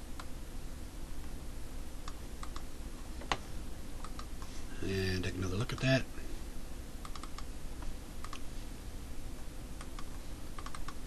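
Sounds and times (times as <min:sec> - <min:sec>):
steady low hum: 0:00.0 - 0:11.0
keyboard and mouse clicks: 0:02.0 - 0:03.4, 0:04.0 - 0:04.4, 0:07.0 - 0:08.5, 0:09.8 - 0:11.0.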